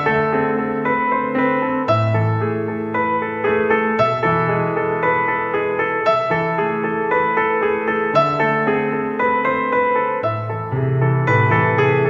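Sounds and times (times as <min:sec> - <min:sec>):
slow keyboard music: 0:00.0 - 0:12.0.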